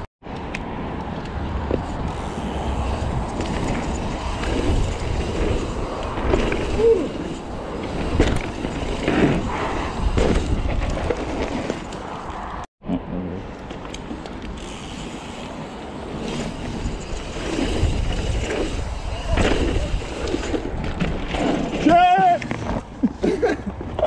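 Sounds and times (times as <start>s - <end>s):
bike knocks and rattles: 1.6s - 12.1s, 16.2s - 22.9s
bike tyre rumble on dirt: 1.6s - 12.6s, 14.6s - 23.0s.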